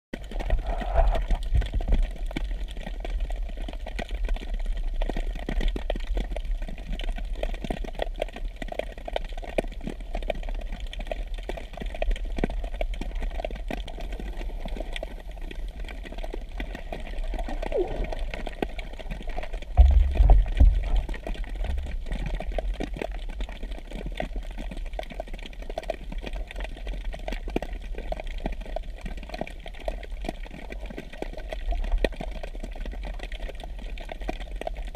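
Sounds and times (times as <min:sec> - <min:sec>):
underwater low rumble: 0:00.2 - 0:34.9
loud low burst: 0:19.8 - 0:22.1.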